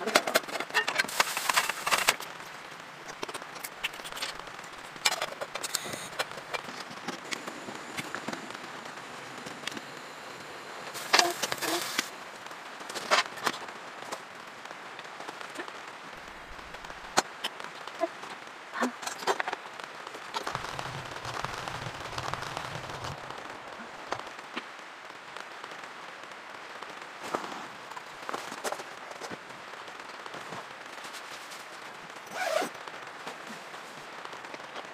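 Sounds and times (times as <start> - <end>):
clicks and crackles: 0.0 - 25.9
rain on a tent: 0.0 - 34.9.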